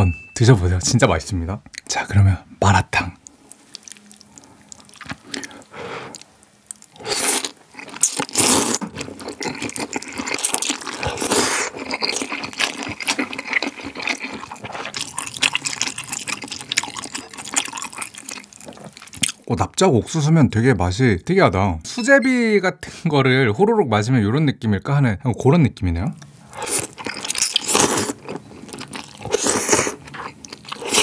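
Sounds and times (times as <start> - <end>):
chewing: 3.2 - 19.4, 26.5 - 31.0.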